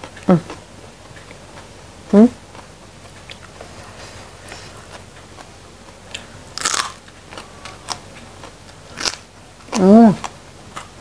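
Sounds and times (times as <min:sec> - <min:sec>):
crunchy bite into vegetable: 0:06.1 - 0:08.2, 0:08.9 - 0:10.9.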